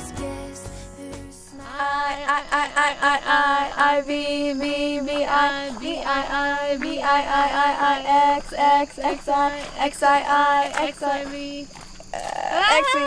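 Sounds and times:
light music: 0.0 - 1.7
woman singing: 0.0 - 13.0.

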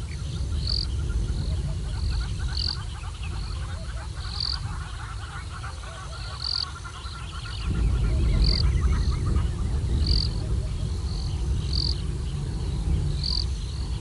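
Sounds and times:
frog chorus: 0.0 - 14.0
steady low rumble: 0.0 - 14.0
higher-pitched frog call: 1.8 - 10.4.

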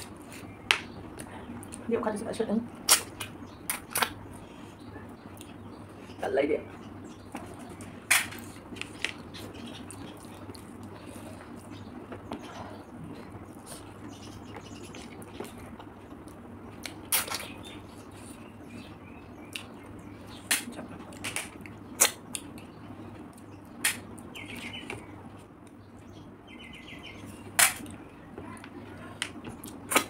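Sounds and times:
eating clicks and wet smacks: 0.8 - 1.9, 5.3 - 5.6, 7.4 - 12.6, 14.5 - 17.8, 19.4 - 25.8, 29.2 - 30.0.

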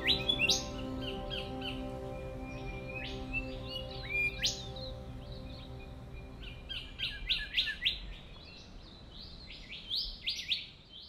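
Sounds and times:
soft background music: 0.0 - 8.4
birds chirping and whistling: 0.0 - 10.7.

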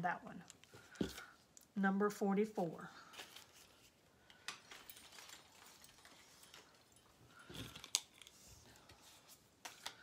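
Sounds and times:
bracelets clicking and rustling: 3.1 - 9.0.

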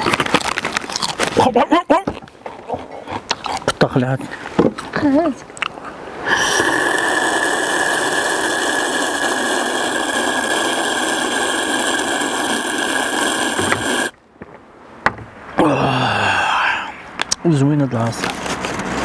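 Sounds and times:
small motor whirring: 6.6 - 14.2.

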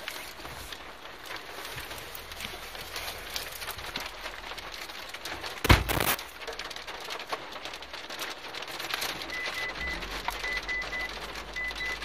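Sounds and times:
hail striking car roof: 0.0 - 12.0
loud thump: 5.7 - 6.0.

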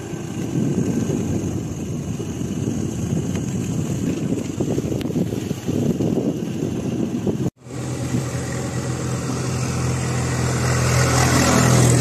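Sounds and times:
wind rumble: 0.0 - 12.0
tractor diesel engine humming: 7.6 - 12.0.

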